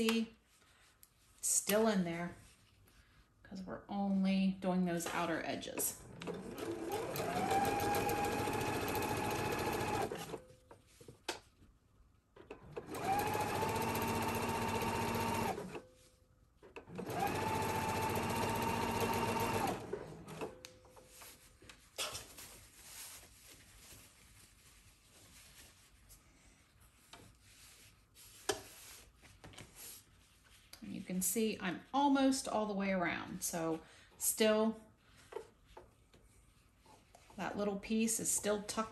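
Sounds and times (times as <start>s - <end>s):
sewing machine stitching: 5.0s - 10.4s, 12.5s - 15.8s, 16.8s - 20.6s.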